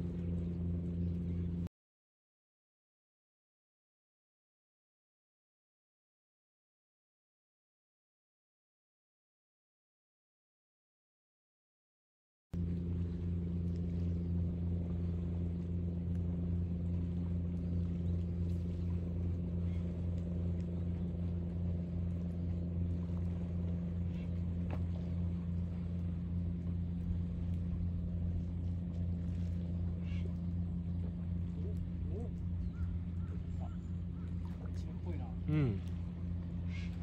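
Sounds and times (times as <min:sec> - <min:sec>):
motor humming steadily: 0:00.0 - 0:01.7, 0:12.6 - 0:37.0.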